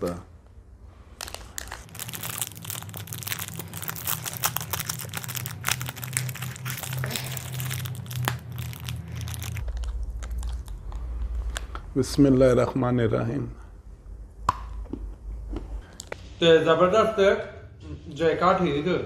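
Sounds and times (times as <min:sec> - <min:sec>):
wrapper crinkling and tearing: 0:01.2 - 0:11.0.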